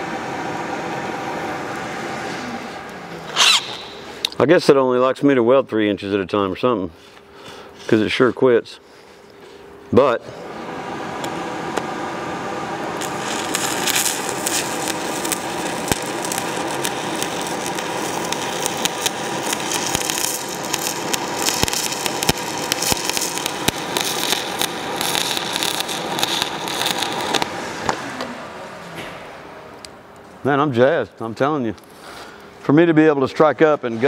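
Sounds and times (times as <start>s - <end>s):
welding arc crackling and popping: 2.6s - 4.4s, 12.8s - 28.3s.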